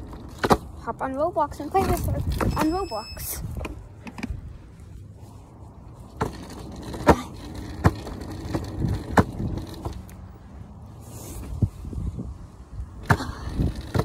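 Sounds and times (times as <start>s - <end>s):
hoverboard wheels rolling on concrete: 0.0s - 14.0s
wheels knocking over slab joints: 6.1s - 10.1s.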